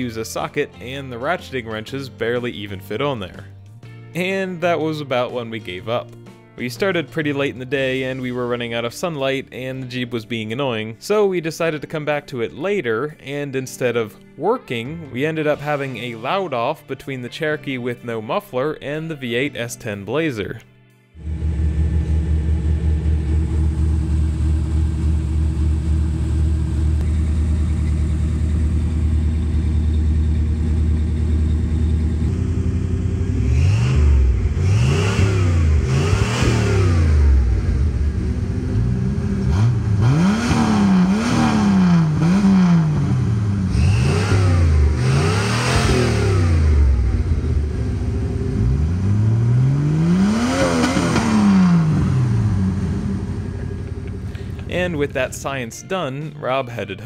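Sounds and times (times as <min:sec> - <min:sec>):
unmuffled engine revving: 0:21.2 - 0:55.5
car engine idling: 0:21.2 - 0:55.6.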